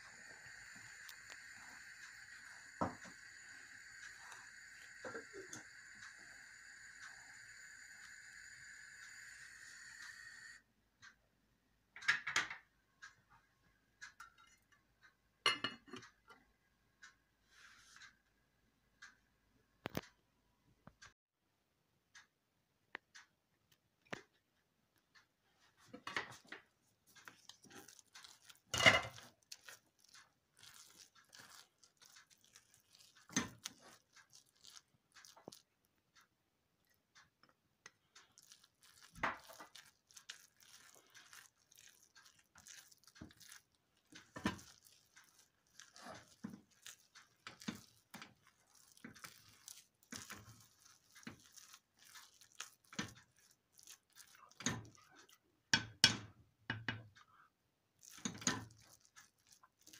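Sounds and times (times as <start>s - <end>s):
spoon stirring thick porridge: 0.0s - 10.6s, 25.2s - 59.9s
spoon knocking against pot: 15.5s - 16.1s, 55.7s - 57.1s.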